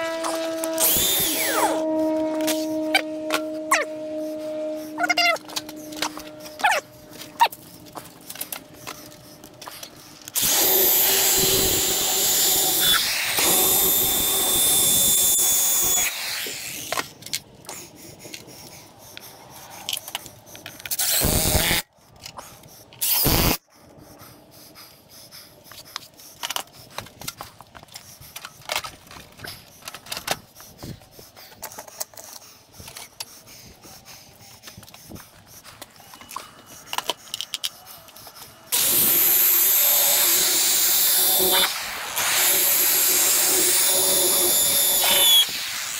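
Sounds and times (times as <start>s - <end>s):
cordless drill driving screws: 0.4s - 1.6s, 10.4s - 17.0s, 38.8s - 45.6s.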